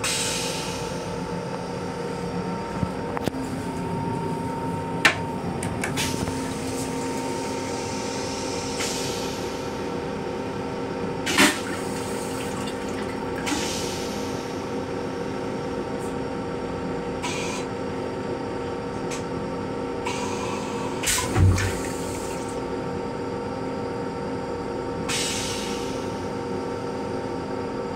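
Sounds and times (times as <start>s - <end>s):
electrical hum: 0.0s - 27.9s
toilet flush hissing spurts: 11.2s - 14.4s, 21.0s - 22.6s.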